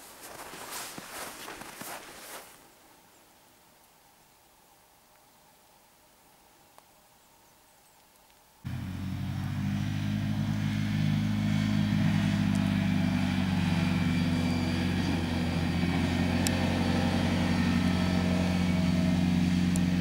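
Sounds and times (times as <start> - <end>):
quad bike engine running: 8.7 - 20.0.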